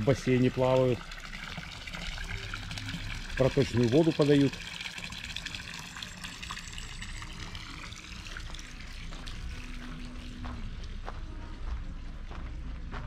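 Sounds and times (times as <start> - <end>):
running water pouring into pool: 0.0 - 10.6.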